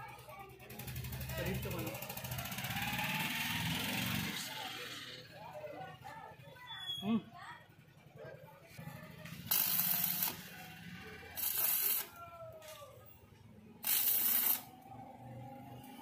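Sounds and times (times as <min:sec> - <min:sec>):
arc welding crackle: 0:09.3 - 0:12.2, 0:13.8 - 0:14.8.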